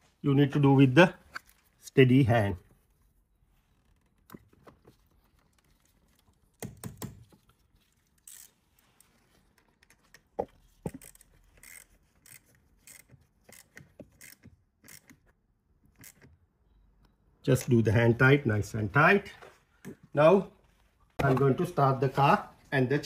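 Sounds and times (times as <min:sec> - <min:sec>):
metal clicks and scrapes of spanner: 0:08.1 - 0:10.0, 0:10.9 - 0:15.2, 0:16.0 - 0:16.3.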